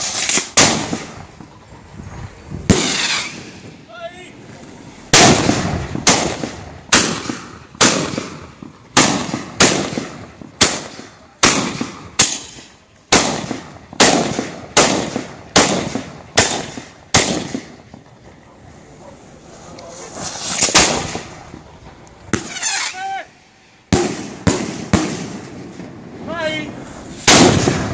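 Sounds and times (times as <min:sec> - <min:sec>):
black-powder charges banging: 0:20.1 - 0:23.0.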